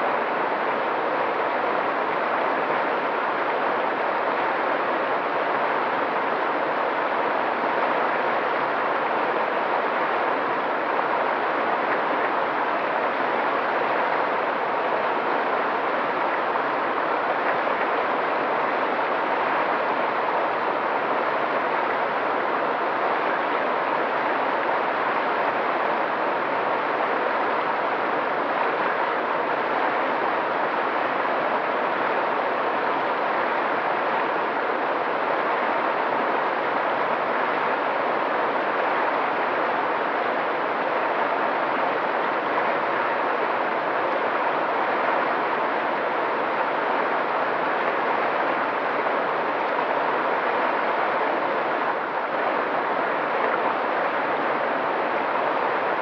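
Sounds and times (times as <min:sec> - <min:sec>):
stream running over rocks: 0:00.1 - 0:56.0.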